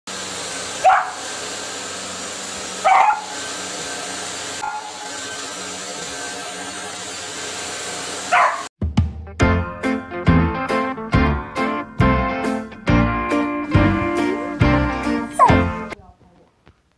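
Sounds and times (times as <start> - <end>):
vacuum cleaner running: 0.1 - 8.7, 13.3 - 16.0
puppy barking: 0.8 - 1.3, 2.8 - 3.4, 4.6 - 5.1, 8.3 - 8.7, 15.3 - 15.7.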